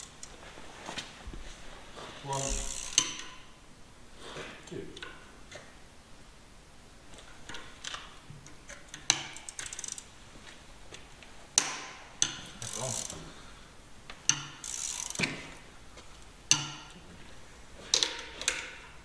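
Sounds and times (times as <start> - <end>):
ratchet spanner clicking: 2.5 - 3.4, 8.7 - 10.1, 11.6 - 13.2, 14.2 - 15.3.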